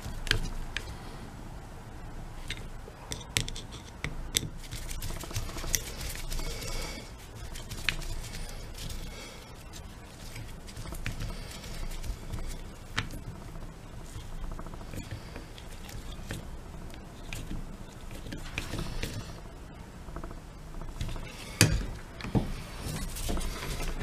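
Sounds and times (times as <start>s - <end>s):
screwdriver clicking and scraping metal: 2.4s - 6.3s.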